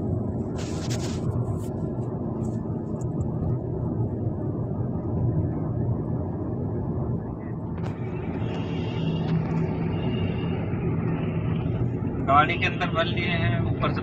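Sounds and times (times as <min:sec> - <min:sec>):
car engine and tyre rumble: 0:00.0 - 0:14.0
scratchy rustle: 0:00.6 - 0:01.8.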